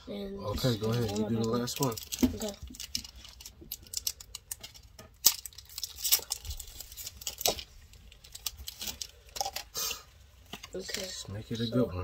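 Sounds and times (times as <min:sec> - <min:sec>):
foil wrapper crackling and tearing: 0:00.7 - 0:10.0.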